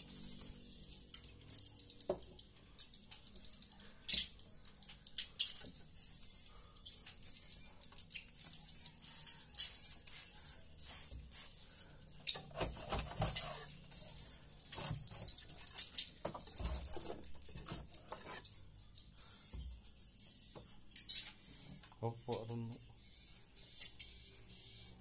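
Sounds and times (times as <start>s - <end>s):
birds twittering chirps: 0.0s - 25.0s
tool scraping on wooden board: 12.4s - 13.8s, 16.3s - 18.6s.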